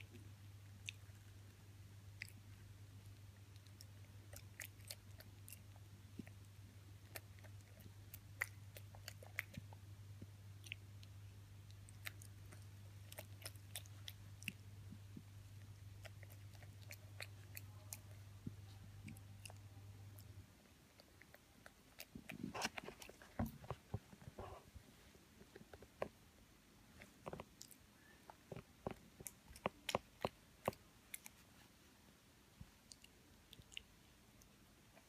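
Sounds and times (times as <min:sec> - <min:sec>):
animal chewing and crunching: 0:02.2 - 0:24.6, 0:26.9 - 0:31.7.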